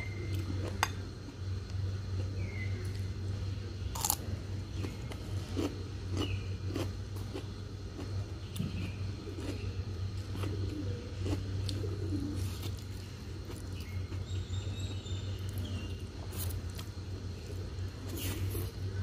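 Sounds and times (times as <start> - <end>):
steady low hum: 0.0 - 19.0
birds chirping and cooing: 8.3 - 16.2.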